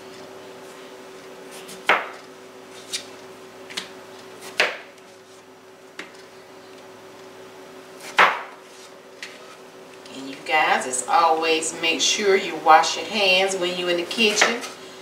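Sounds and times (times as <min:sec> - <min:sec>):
faint steady hum: 0:00.0 - 0:15.0
knife chopping onto cutting mat: 0:01.6 - 0:02.2, 0:04.4 - 0:04.9, 0:08.0 - 0:08.6.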